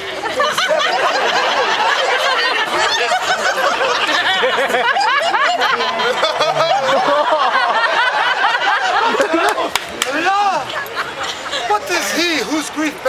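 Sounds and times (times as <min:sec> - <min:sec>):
audience laughing: 0:00.0 - 0:13.0.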